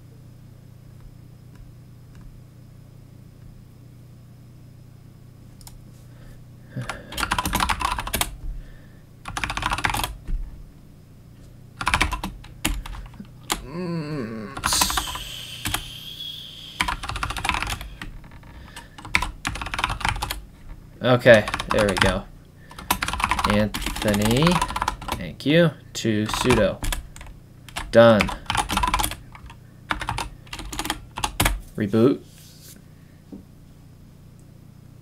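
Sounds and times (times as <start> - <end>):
low steady hum: 0.0 - 35.0
keyboard typing: 6.8 - 8.4, 9.2 - 10.2, 11.8 - 13.6, 14.6 - 15.9, 16.8 - 20.4, 21.3 - 25.2, 26.3 - 31.6
high whistle-like noise: 14.8 - 17.0.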